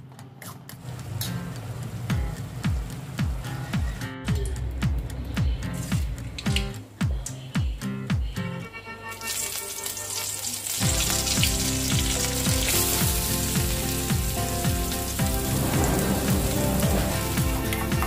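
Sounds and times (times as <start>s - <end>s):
background music with steady beat: 0.0s - 18.0s
hot oil sizzling: 0.8s - 4.0s, 9.1s - 18.0s.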